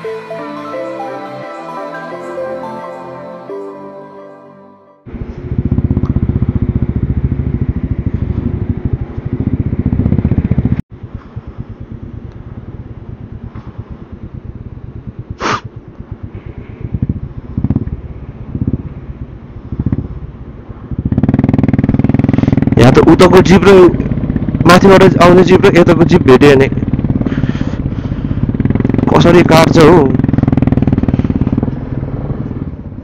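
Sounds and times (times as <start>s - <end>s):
motorcycle engine running: 5.1s - 33.0s
short sharp sound: 15.4s - 15.7s.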